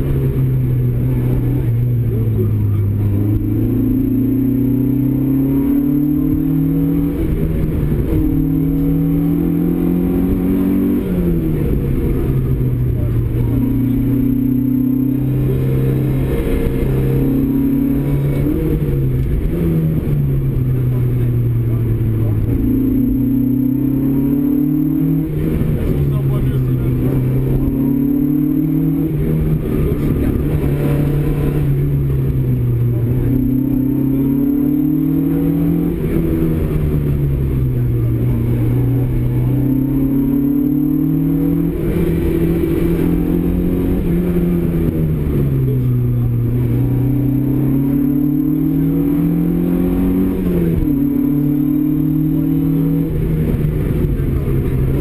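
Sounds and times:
rally car engine revving: 0:00.0 - 0:55.0.

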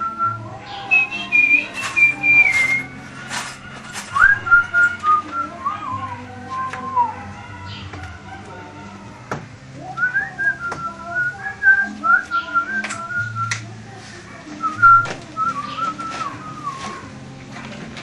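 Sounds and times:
man whistling a melody: 0:00.0 - 0:03.0, 0:04.1 - 0:06.0, 0:10.0 - 0:13.6, 0:14.6 - 0:17.0
song playing on a stereo: 0:00.0 - 0:18.0.

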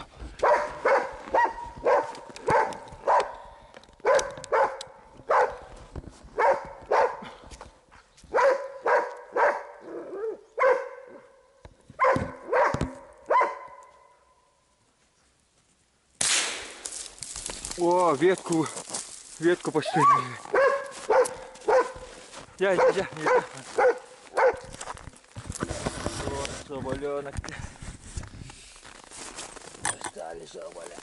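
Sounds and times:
dog barking: 0:00.4 - 0:05.7, 0:06.4 - 0:07.2, 0:08.3 - 0:11.4, 0:12.0 - 0:14.1, 0:20.1 - 0:22.1, 0:22.7 - 0:24.7.

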